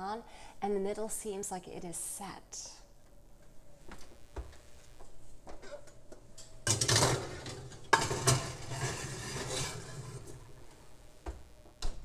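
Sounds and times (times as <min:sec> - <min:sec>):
glass dish scraping on oven rack: 0:06.7 - 0:10.5.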